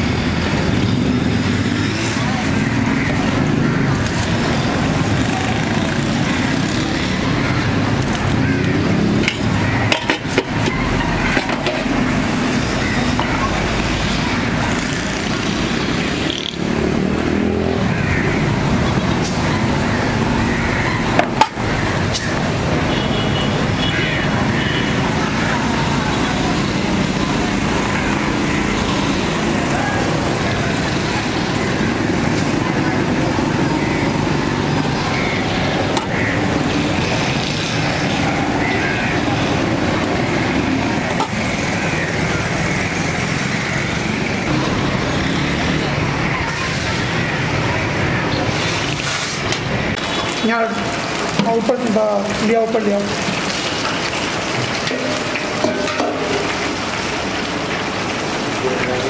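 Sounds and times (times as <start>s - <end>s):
motor traffic passing: 0.0s - 59.0s
people talking: 2.0s - 11.9s, 12.8s - 14.7s, 24.2s - 43.3s, 50.4s - 53.4s, 54.8s - 56.8s, 58.5s - 59.0s.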